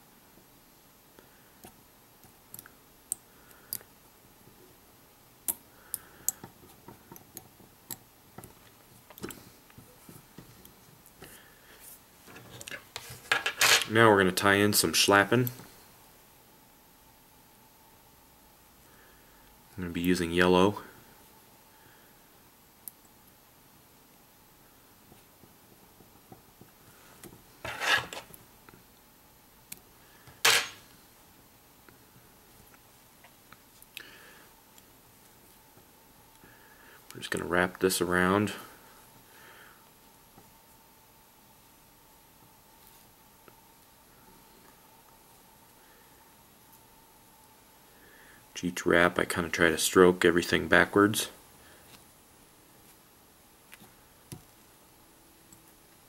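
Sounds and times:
fly-tying clicks and ticks: 0:05.4 - 0:09.4
scratchy rubbing rustles: 0:27.6 - 0:28.3.

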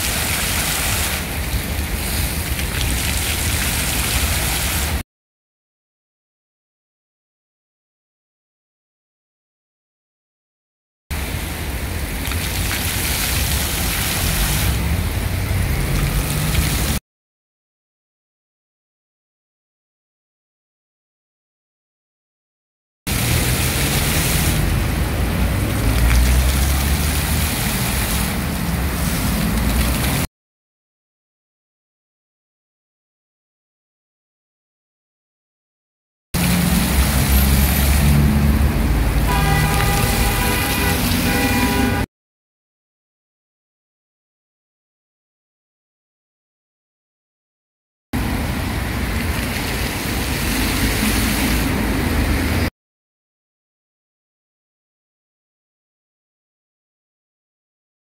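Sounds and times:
fountain water splashing: 0:00.0 - 0:05.0, 0:11.1 - 0:17.0, 0:23.1 - 0:30.3, 0:36.4 - 0:42.1, 0:48.2 - 0:52.7
passing traffic rumble: 0:11.2 - 0:17.0, 0:23.1 - 0:30.3, 0:36.4 - 0:42.1, 0:48.2 - 0:52.7.

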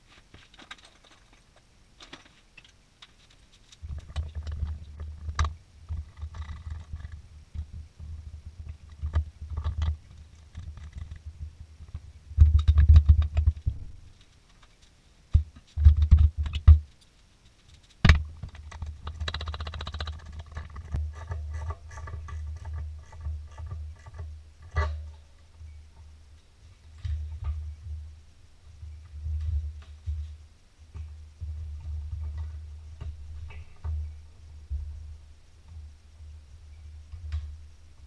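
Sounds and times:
steady low hum: 0:00.0 - 0:38.0
clatter of hands on wiring: 0:00.1 - 0:07.7, 0:08.7 - 0:24.9
sharp clicks: 0:17.7 - 0:21.0.

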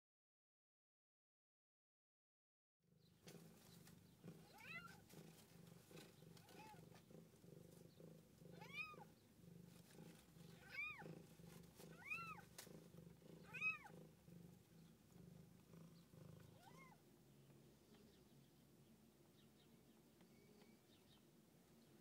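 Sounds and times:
cat purring: 0:02.9 - 0:22.0
kittens mewing: 0:04.3 - 0:05.2, 0:08.4 - 0:09.2, 0:10.1 - 0:12.6, 0:13.4 - 0:14.3, 0:16.4 - 0:17.0.

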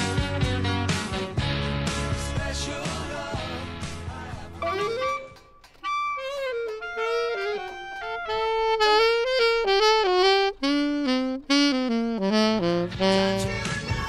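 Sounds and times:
saxophone solo melody: 0:04.6 - 0:14.0.

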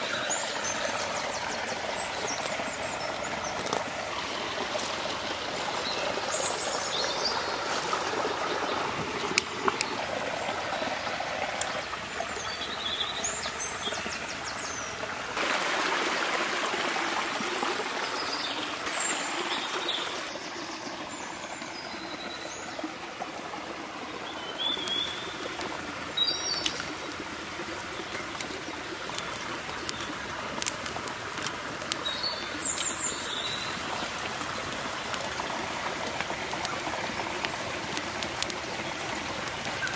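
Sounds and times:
running water: 0:00.0 - 0:39.9
birds chirping: 0:24.1 - 0:39.9
sticks clicking: 0:27.8 - 0:32.1, 0:35.9 - 0:38.6.

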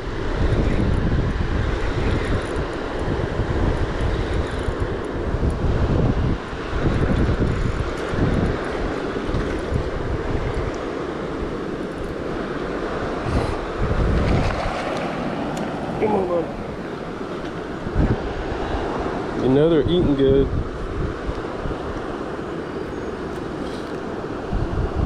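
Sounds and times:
wind buffeting microphone: 0:00.0 - 0:25.0
river water rushing over rocks: 0:04.8 - 0:19.5.

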